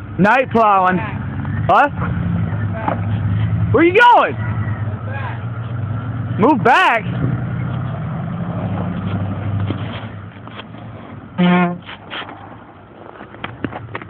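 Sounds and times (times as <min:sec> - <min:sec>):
pickup truck engine humming: 0:00.0 - 0:14.0
car horn toot: 0:11.4 - 0:11.9.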